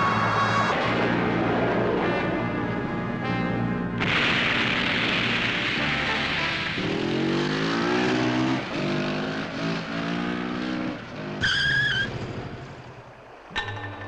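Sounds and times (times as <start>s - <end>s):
motorcycle engine revving: 4.1s - 13.0s
tire squeal: 11.3s - 12.9s.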